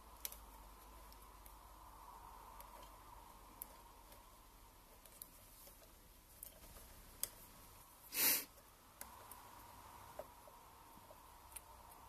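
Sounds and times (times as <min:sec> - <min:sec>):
short loud hiss: 0:08.1 - 0:08.5.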